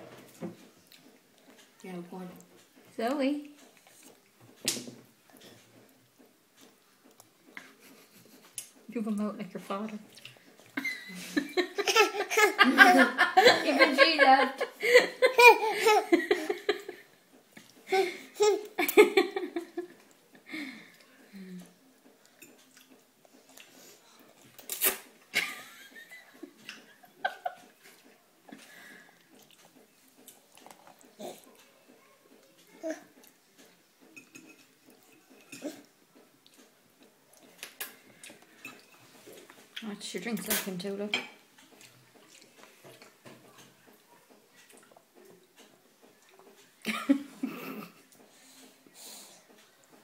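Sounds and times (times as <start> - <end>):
baby eating wet mouth sounds: 6.6 - 10.9, 20.9 - 25.2, 27.9 - 40.8, 41.4 - 46.6
baby sucking on straw: 22.8 - 25.1.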